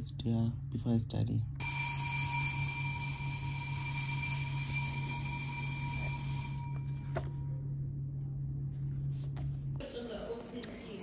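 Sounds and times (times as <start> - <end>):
bell-like ringing tone: 1.6 - 7.4.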